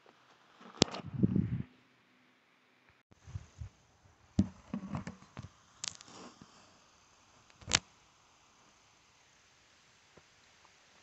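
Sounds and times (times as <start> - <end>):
knocks on wooden bench: 4.4 - 5.1.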